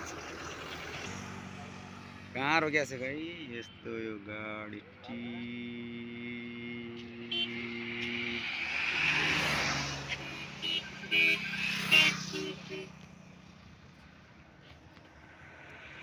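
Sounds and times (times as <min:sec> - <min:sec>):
highway traffic hum: 0:00.0 - 0:16.0
motorcycles passing: 0:00.0 - 0:16.0
van passing close: 0:05.4 - 0:12.7.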